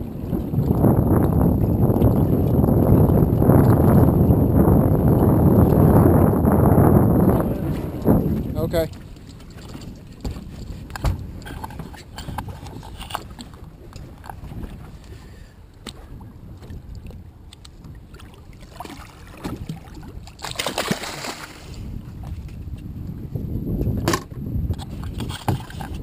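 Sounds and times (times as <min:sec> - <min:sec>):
water lapping against boat: 0:00.0 - 0:26.0
wind on microphone: 0:00.0 - 0:26.0
short knocks and clicks: 0:08.9 - 0:13.2
shark thrashing splash: 0:18.8 - 0:21.7.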